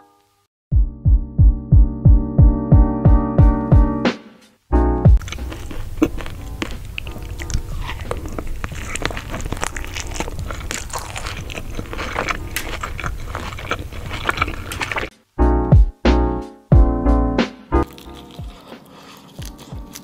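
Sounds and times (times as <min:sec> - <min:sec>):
music: 0:00.0 - 0:11.4, 0:15.0 - 0:20.0
crunching and chewing taco: 0:05.2 - 0:15.1, 0:17.8 - 0:20.0.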